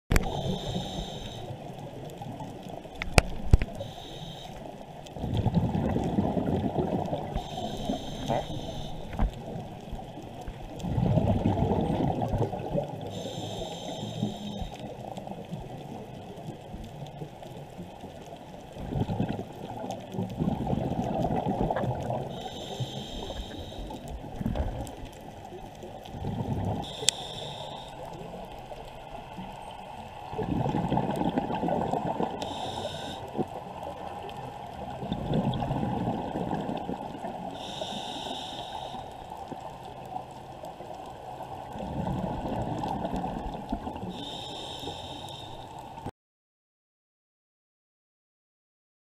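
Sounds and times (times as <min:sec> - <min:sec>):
regulator inhale hiss: 0:00.1 - 0:01.8, 0:03.4 - 0:05.2, 0:07.2 - 0:10.5, 0:13.0 - 0:15.1, 0:22.2 - 0:24.3, 0:26.8 - 0:29.5, 0:32.3 - 0:33.8, 0:37.3 - 0:39.6, 0:44.0 - 0:46.0
exhaled bubbles rushing: 0:05.2 - 0:07.4, 0:10.8 - 0:13.0, 0:18.8 - 0:22.3, 0:26.1 - 0:26.9, 0:30.3 - 0:32.4, 0:34.9 - 0:37.2, 0:41.8 - 0:44.1.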